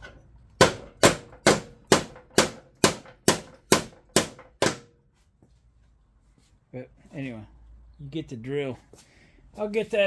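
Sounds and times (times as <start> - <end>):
hammer striking steel: 0.0 - 5.0.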